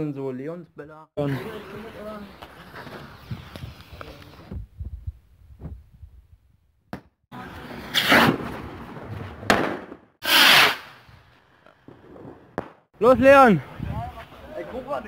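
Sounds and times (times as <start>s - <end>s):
rockets hissing: 1.3s - 4.6s, 10.2s - 12.5s
firework crack: 1.3s - 4.7s, 7.4s - 13.0s
loud firework burst: 9.5s - 11.2s.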